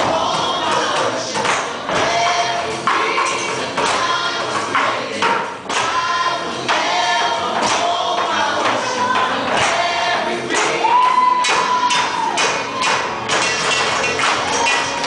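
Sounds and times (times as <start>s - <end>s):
choir singing over music: 0.0s - 15.0s
hard percussive hits: 0.0s - 15.0s.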